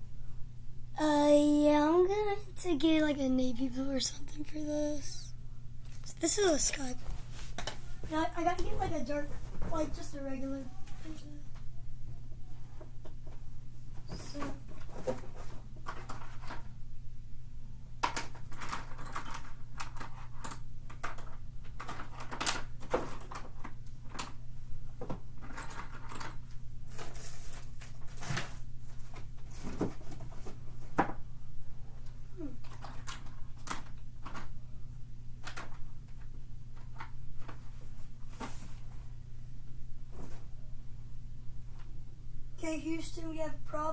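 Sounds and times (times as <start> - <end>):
rummaging clicks and rattles: 18.0 - 24.4, 25.4 - 27.2.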